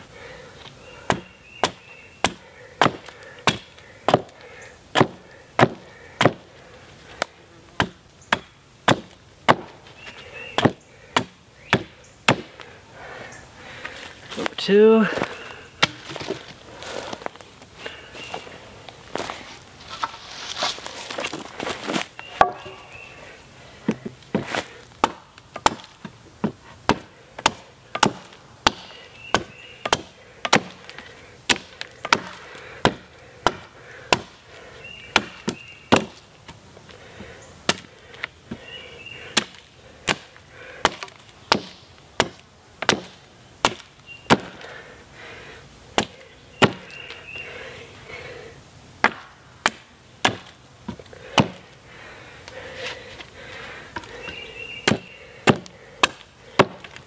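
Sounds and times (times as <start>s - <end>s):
hatchet chopping wood: 1.1s - 6.5s, 7.2s - 9.8s, 10.6s - 12.7s, 15.8s - 16.5s, 22.0s - 22.8s, 23.9s - 34.4s, 35.1s - 36.2s, 37.6s - 38.6s, 39.3s - 44.7s, 45.9s - 47.2s, 49.0s - 51.7s, 53.9s - 57.0s.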